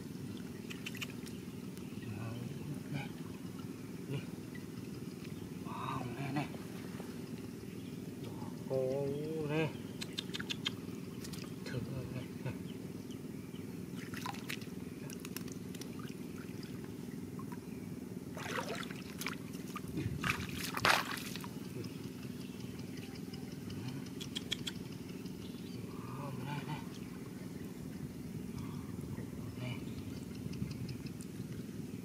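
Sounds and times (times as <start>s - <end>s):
low background rumble: 0.0s - 32.0s
muddy water splashing: 14.0s - 17.6s, 18.3s - 21.8s.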